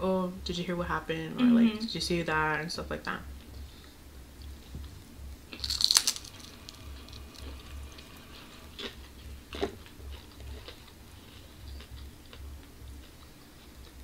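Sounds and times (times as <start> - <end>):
crunch of biting fried food: 5.5 - 7.6
chewing: 5.5 - 14.0.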